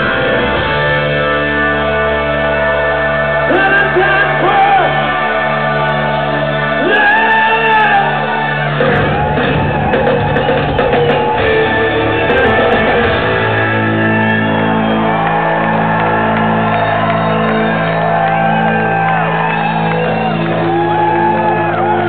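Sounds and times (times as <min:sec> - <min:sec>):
crowd shouting and whooping: 0:00.0 - 0:22.0
electric guitar notes bending: 0:00.0 - 0:22.0
drums and cymbals crashing: 0:08.1 - 0:22.0.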